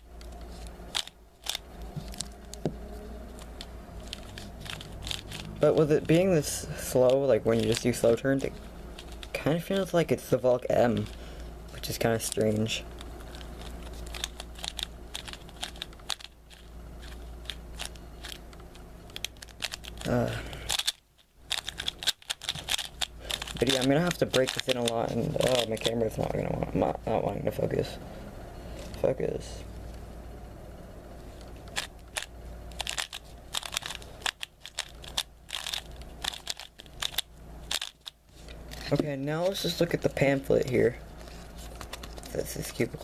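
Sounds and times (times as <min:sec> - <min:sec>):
plastic puzzle cube clicking: 0:04.0 - 0:05.5, 0:13.0 - 0:18.4, 0:19.1 - 0:20.1, 0:20.7 - 0:25.8, 0:31.7 - 0:38.2.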